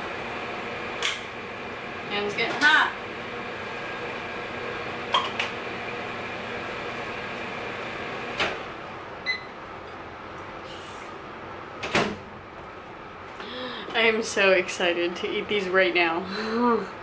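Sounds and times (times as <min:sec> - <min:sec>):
microwave oven humming: 0:00.0 - 0:10.6
door shutting with a clunk: 0:11.8 - 0:12.2.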